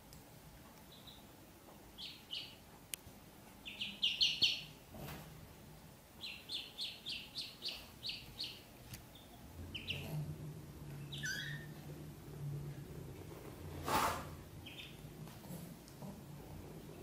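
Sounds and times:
ducklings peeping: 0.9s - 1.3s, 1.9s - 2.7s, 3.6s - 4.8s, 6.2s - 12.2s, 14.6s - 15.5s.

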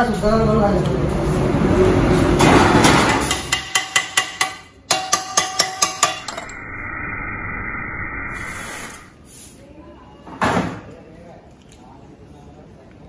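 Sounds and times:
heavy truck passing: 0.8s - 3.5s
hammer striking metal pipe: 2.4s - 6.6s
steady hum: 4.9s - 9.2s.

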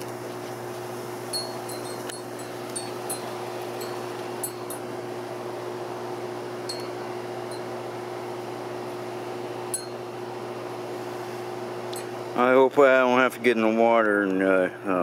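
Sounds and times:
steady mechanical hum: 0.0s - 15.0s
high ringing pings: 1.3s - 4.8s, 6.7s - 7.7s, 9.7s - 10.0s.

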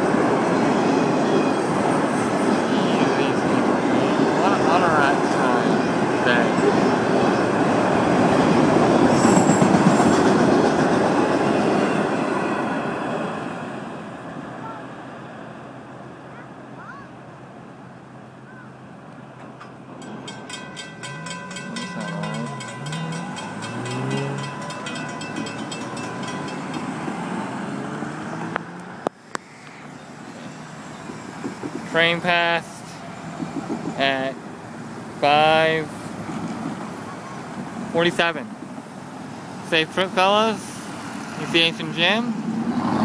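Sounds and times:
train wheels rumbling on rails: 0.0s - 14.2s, 19.4s - 28.6s, 29.8s - 43.0s
traffic rushing past: 0.0s - 43.0s
crossing bell ringing: 19.9s - 28.4s.

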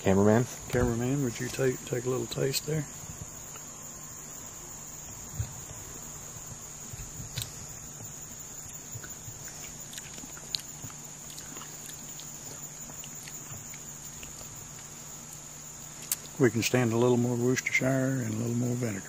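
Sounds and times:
high-pitched insect drone: 0.0s - 19.0s
mouth sounds tasting: 8.6s - 15.4s.

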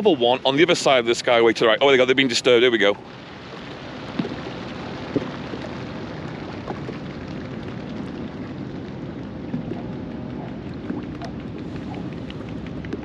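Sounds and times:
flock of birds taking off: 0.3s - 13.0s.

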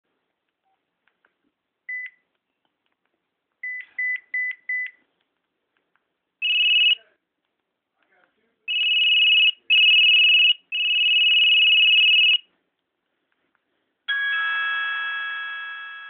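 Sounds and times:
phone ringtone beeps: 6.4s - 7.0s, 8.7s - 12.4s, 14.1s - 16.0s.

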